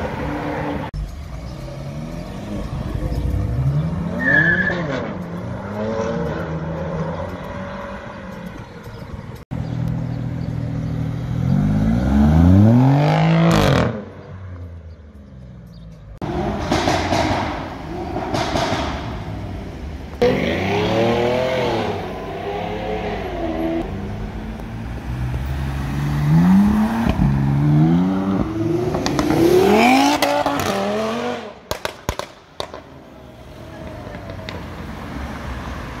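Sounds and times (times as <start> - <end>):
traffic noise: 0.0 - 36.0
car engine accelerating: 9.6 - 14.7
exhaust cracks: 16.2 - 20.2.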